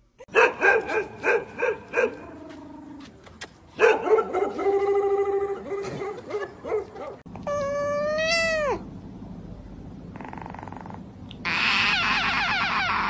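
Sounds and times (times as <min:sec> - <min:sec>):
dog barking: 0:00.3 - 0:02.2, 0:03.8 - 0:04.8, 0:05.6 - 0:07.3
kitten meowing: 0:07.5 - 0:08.8.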